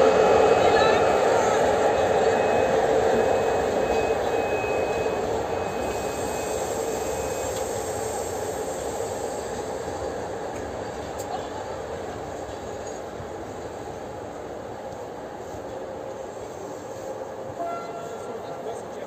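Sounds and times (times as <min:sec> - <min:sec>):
train rolling rumble: 0:00.0 - 0:19.0.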